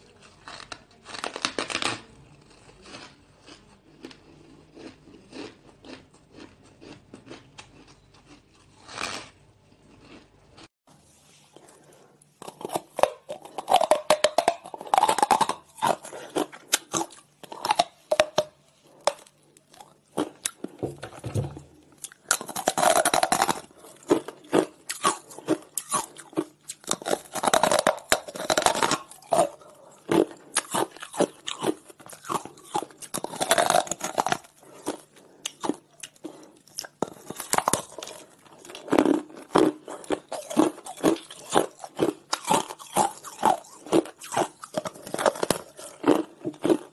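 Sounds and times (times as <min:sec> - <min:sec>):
ice being bitten and crunched: 0:12.4 - 0:20.6, 0:22.0 - 0:46.9.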